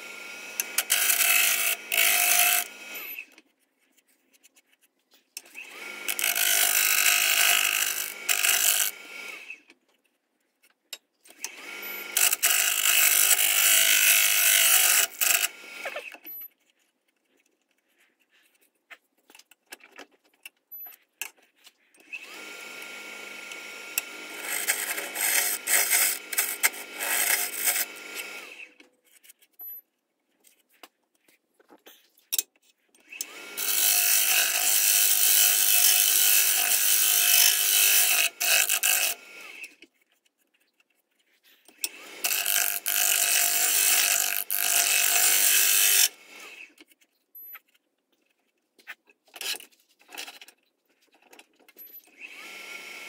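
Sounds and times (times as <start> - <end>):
wood lathe motor hum: 0.0 - 3.2, 5.6 - 9.6, 11.4 - 16.1, 22.1 - 28.7, 33.2 - 39.7, 41.8 - 46.7
turning tool scraping wood: 0.4 - 10.7, 11.3 - 20.4, 21.0 - 29.6, 30.2 - 51.9.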